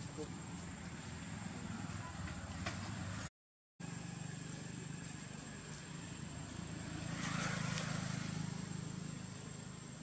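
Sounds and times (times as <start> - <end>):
low engine hum: 0.1 - 10.0.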